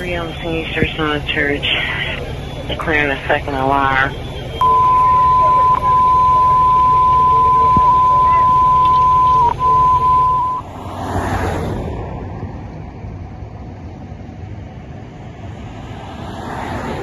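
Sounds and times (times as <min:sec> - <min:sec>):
low traffic hum: 0:00.0 - 0:17.0
single-pitch beep tone: 0:04.5 - 0:10.7
car passing close by: 0:10.4 - 0:13.0, 0:15.2 - 0:17.0.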